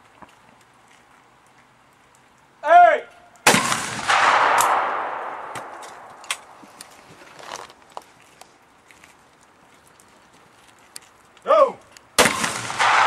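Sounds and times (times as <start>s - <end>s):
person shouting: 2.6s - 3.1s, 11.4s - 11.8s
shotgun shot echoing: 3.5s - 6.6s, 12.2s - 13.0s.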